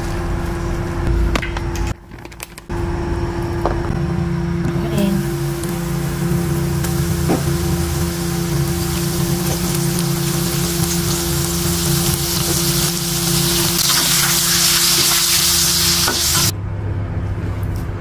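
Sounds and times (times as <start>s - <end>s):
low hum: 0.0s - 18.0s
food deep-frying in oil: 5.3s - 16.5s.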